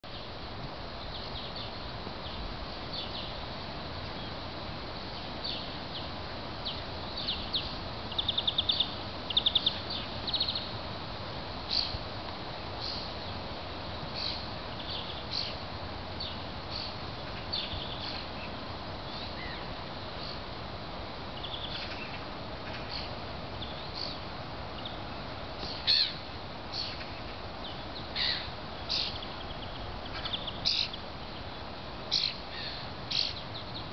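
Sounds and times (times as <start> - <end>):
background hiss: 0.0 - 33.9
birds chirping: 5.1 - 10.8, 21.4 - 33.9
rapid repeated bird notes: 21.4 - 33.9.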